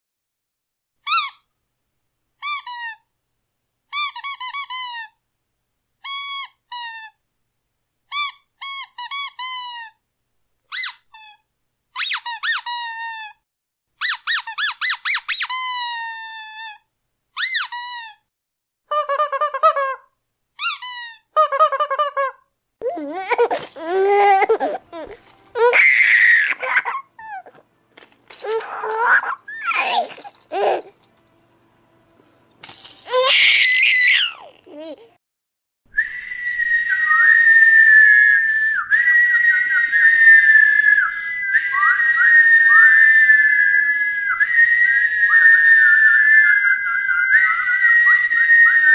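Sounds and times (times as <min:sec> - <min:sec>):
squeaky dog toy squeaking: 0:01.0 - 0:01.5, 0:02.4 - 0:03.0, 0:03.9 - 0:05.2, 0:06.0 - 0:07.2, 0:08.1 - 0:10.0, 0:10.7 - 0:11.4, 0:12.0 - 0:13.4, 0:14.0 - 0:16.8, 0:17.4 - 0:18.2, 0:18.9 - 0:22.4, 0:28.4 - 0:30.9.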